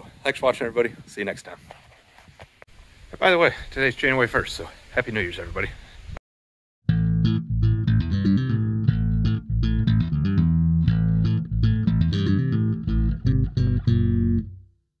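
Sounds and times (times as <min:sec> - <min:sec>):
plucked guitar notes: 0:06.9 - 0:14.7
bass guitar line: 0:06.9 - 0:14.8.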